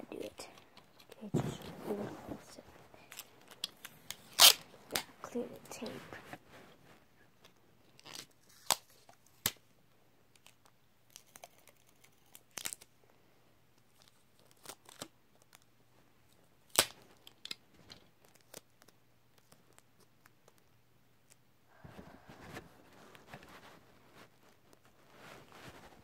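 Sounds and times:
adhesive tape ripping and crinkling: 3.1 - 5.1, 8.0 - 9.6, 10.4 - 12.9, 14.0 - 15.6, 16.7 - 17.6.

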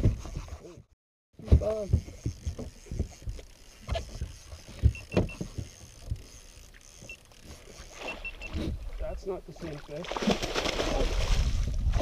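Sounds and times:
water splashing: 6.4 - 12.0
short high beeps: 8.0 - 8.6.

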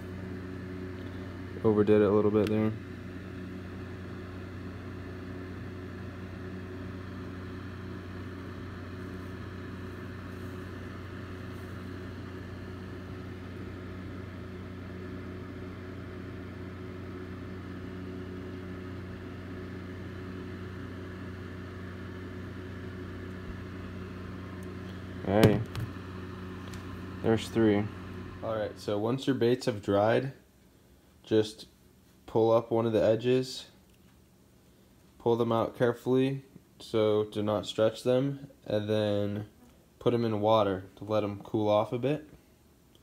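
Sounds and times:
electric fan humming: 0.0 - 43.0.

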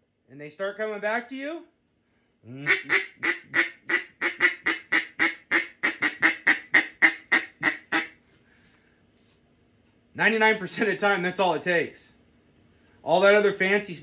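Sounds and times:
duck call quacks: 2.5 - 8.2.

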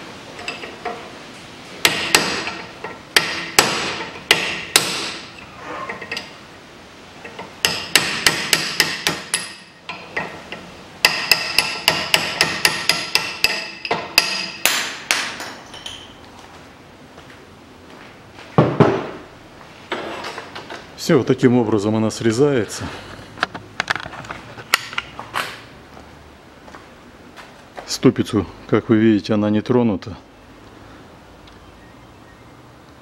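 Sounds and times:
hammer striking metal chisel: 1.8 - 5.3, 7.3 - 10.3, 11.0 - 15.6.

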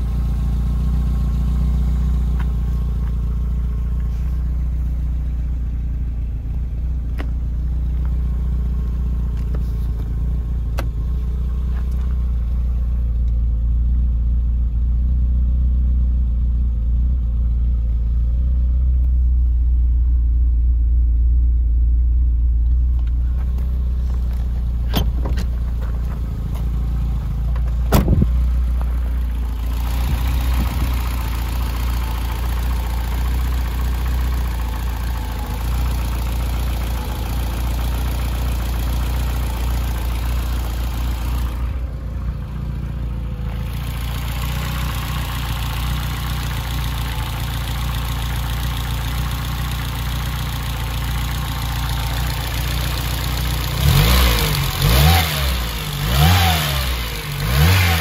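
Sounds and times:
car engine idling: 0.0 - 58.0
engine revving: 43.2 - 58.0.

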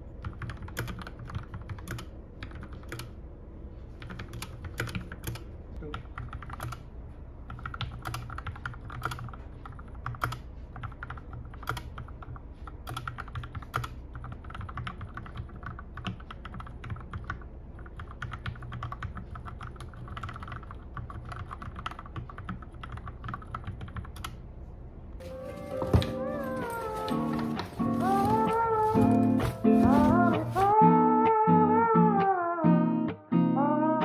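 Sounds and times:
mechanical keyboard typing: 0.2 - 3.2, 4.0 - 6.8, 7.5 - 24.4.

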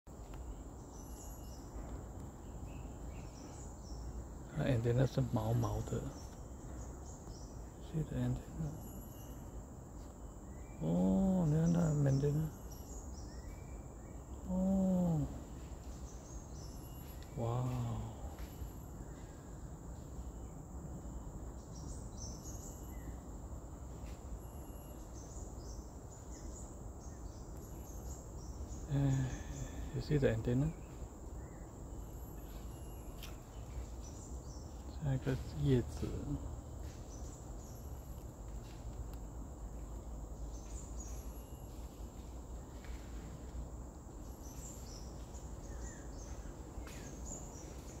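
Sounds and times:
high-pitched insect drone: 7.8 - 10.1, 10.7 - 20.6, 21.2 - 30.9
high-pitched insect-like tone: 7.9 - 10.1, 24.0 - 26.4.

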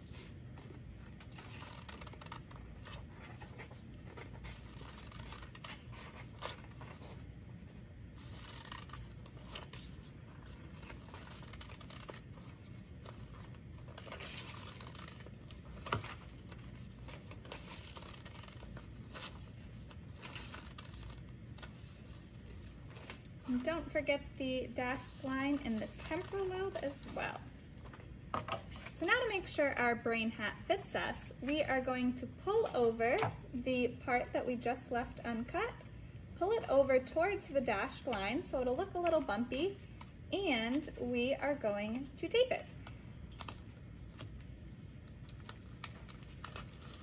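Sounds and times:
paper rustling: 0.0 - 29.0, 42.8 - 47.0.

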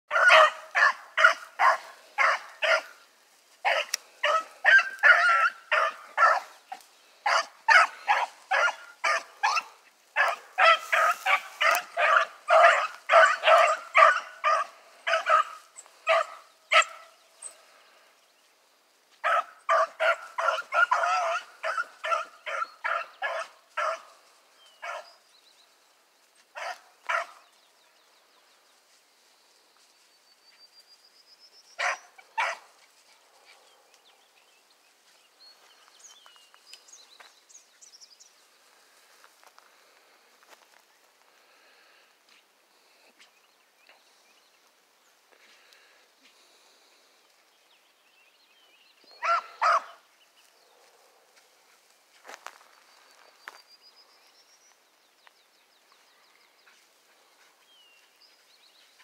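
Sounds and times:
dogs barking: 0.1 - 3.0, 3.6 - 17.1, 19.2 - 24.2, 24.8 - 25.1, 26.6 - 27.4, 31.8 - 34.0, 49.2 - 50.0.

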